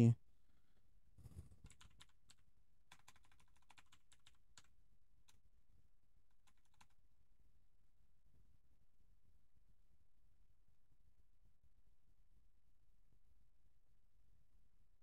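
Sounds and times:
computer keyboard typing: 0:01.7 - 0:04.7, 0:06.4 - 0:07.0.

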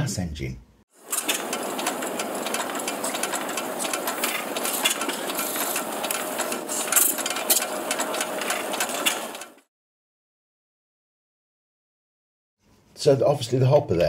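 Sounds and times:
model engine clattering: 0:01.1 - 0:09.6.

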